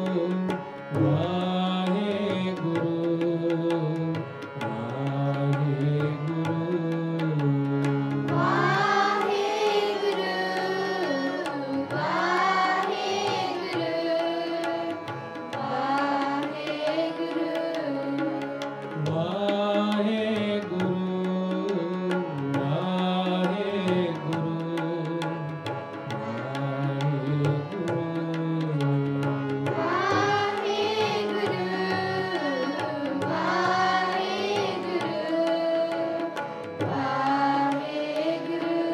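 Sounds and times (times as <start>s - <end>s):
harmonium chords: 0.0s - 38.9s
person singing devotional hymn: 0.0s - 38.9s
tabla rhythm: 0.0s - 38.9s.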